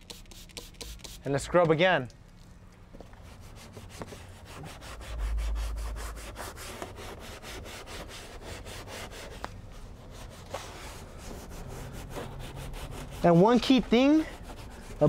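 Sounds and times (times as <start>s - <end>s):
brush scrubbing grime: 0.0s - 1.3s, 3.2s - 15.0s
low rumble: 4.4s - 7.3s.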